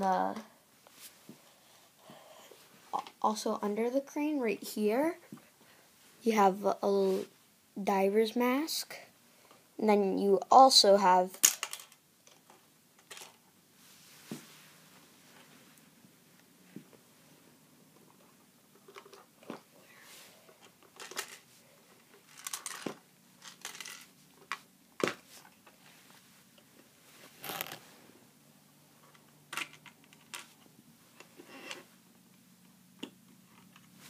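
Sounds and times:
plastic toy pieces clicking: 11.4s - 12.4s.

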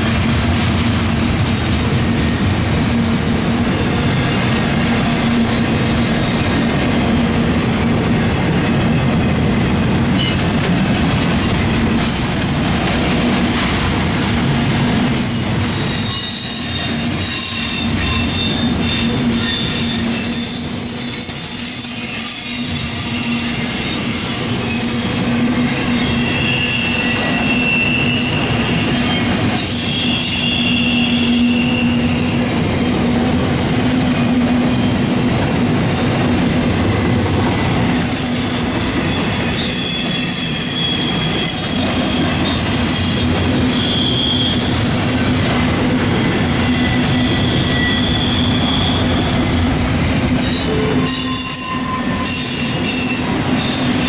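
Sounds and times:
train wheels rumbling on rails: 0.0s - 54.0s
high-pitched wheel squeals: 15.3s - 32.4s, 39.2s - 44.9s, 46.6s - 49.3s, 50.0s - 54.0s.

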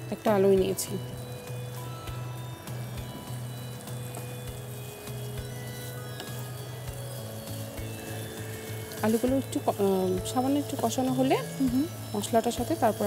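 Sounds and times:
food sizzling in a frying pan: 0.0s - 13.0s
spatula scraping and tapping pan: 3.8s - 10.5s.

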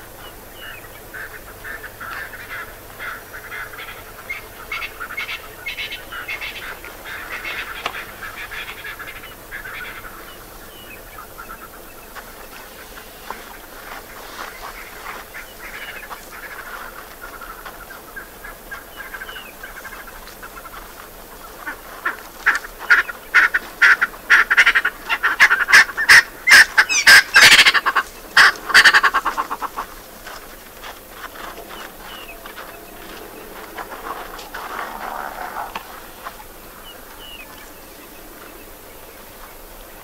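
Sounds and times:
harsh animal calls: 0.6s - 11.9s, 21.4s - 30.1s, 31.4s - 38.3s.

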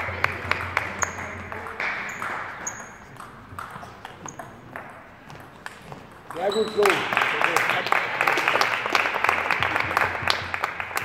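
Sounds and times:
shoes squeaking on floor: 0.0s - 7.0s
table tennis ball clicks: 0.2s - 6.8s.

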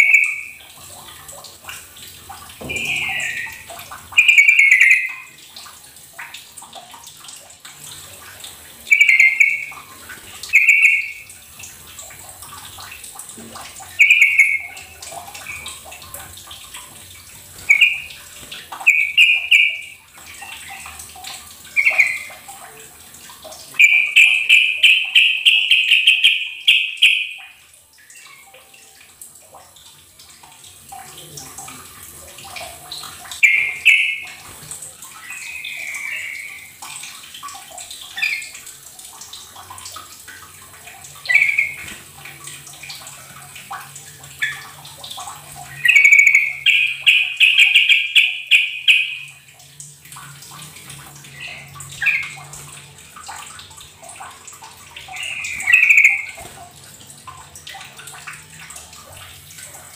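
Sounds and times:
bulbul singing: 0.0s - 0.6s, 2.6s - 5.4s, 8.9s - 9.9s, 10.5s - 11.3s, 13.9s - 15.7s, 17.6s - 18.2s, 18.8s - 21.0s, 21.7s - 22.5s, 23.7s - 28.4s, 33.4s - 34.4s, 35.1s - 36.8s, 41.3s - 41.9s, 45.6s - 49.5s, 55.0s - 56.4s.

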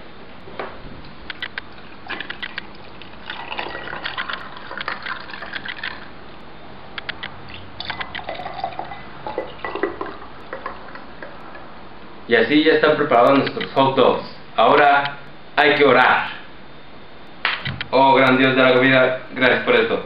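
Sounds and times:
liquid pouring over ice: 1.8s - 6.1s, 7.8s - 11.1s.

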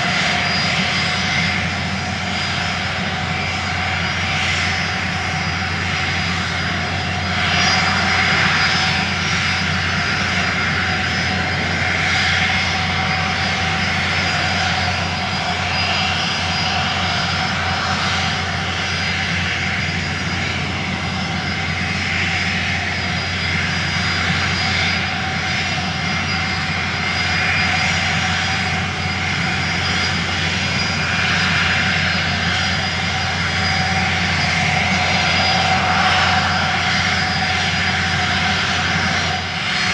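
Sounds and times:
wind rushing over microphone: 0.0s - 24.4s
constant low hum: 0.0s - 39.9s.

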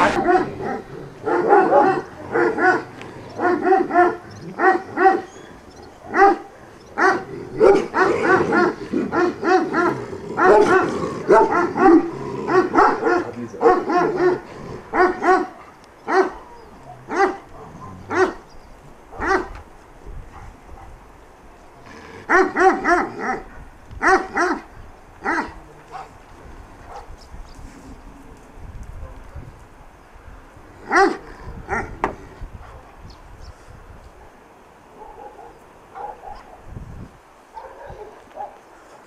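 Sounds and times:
dog barking: 0.0s - 5.3s, 6.1s - 18.4s, 19.1s - 19.6s, 22.3s - 26.2s, 26.9s - 27.1s, 30.8s - 32.0s, 34.9s - 36.6s, 37.5s - 38.6s.

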